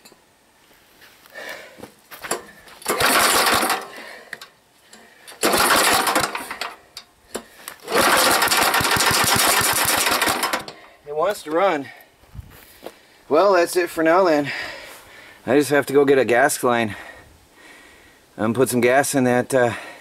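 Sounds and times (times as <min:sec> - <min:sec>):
generator engine pull-started: 0:02.3 - 0:04.1, 0:05.3 - 0:06.8, 0:07.8 - 0:10.8
generator engine sputtering: 0:02.4 - 0:04.1, 0:05.3 - 0:06.8, 0:07.8 - 0:10.8.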